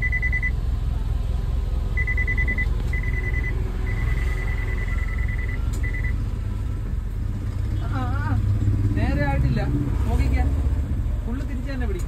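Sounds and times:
parking sensor beeping: 0.0 - 0.6, 1.9 - 6.3
car engine idling: 0.0 - 12.0.

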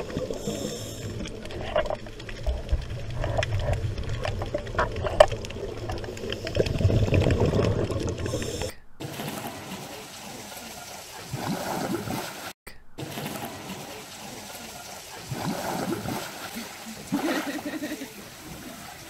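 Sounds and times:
underwater low rumble: 0.0 - 8.8
water bubbling: 0.0 - 19.0.

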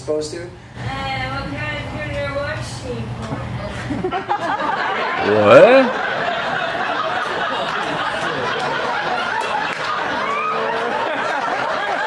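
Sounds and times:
audience laughing and chattering: 3.5 - 12.0.

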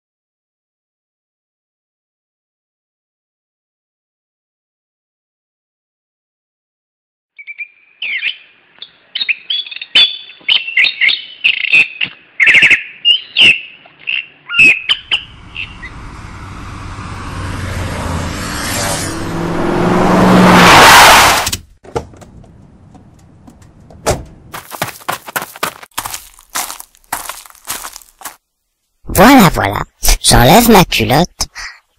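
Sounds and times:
birds chirping: 7.4 - 16.6
car approaching: 15.0 - 24.6.

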